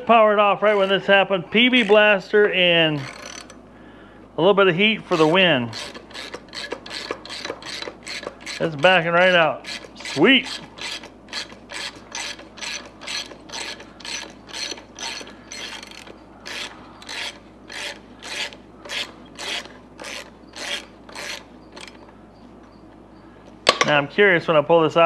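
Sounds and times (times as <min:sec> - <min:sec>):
socket ratchet clicking: 0:03.0 - 0:03.6, 0:05.8 - 0:08.6, 0:09.7 - 0:22.1.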